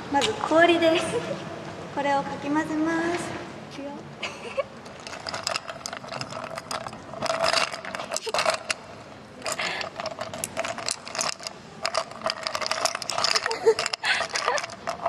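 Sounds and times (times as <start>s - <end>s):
ice cubes clinking in a glass: 5.0s - 8.8s, 9.4s - 15.0s.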